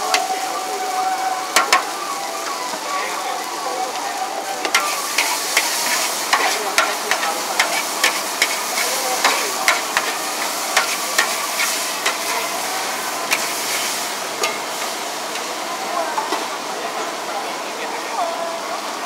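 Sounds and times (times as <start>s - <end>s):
food sizzling: 0.0s - 19.0s
metal spatula scraping wok: 4.6s - 15.5s.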